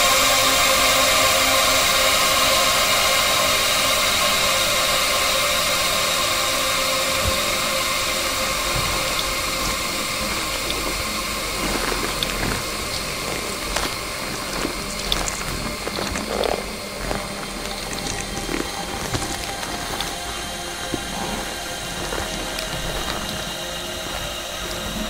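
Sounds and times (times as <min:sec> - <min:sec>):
electronic noise drone: 0:00.0 - 0:25.0
small clicks and crackles: 0:07.2 - 0:25.0.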